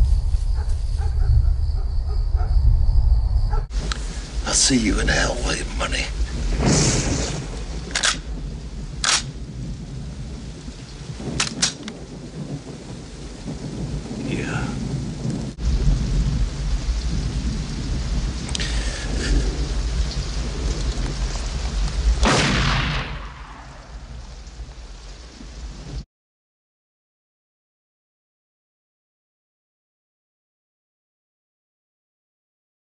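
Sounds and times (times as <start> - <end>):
sharp thunder cracks: 0.0 - 26.0
thunder rumbling: 0.0 - 26.0
heavy rain: 3.7 - 26.1.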